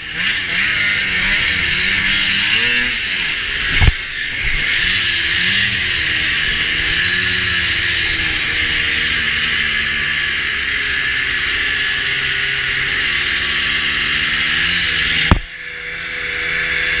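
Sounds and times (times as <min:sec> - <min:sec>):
snowmobile engine running: 0:00.0 - 0:17.0
sharp knock: 0:15.3 - 0:15.5.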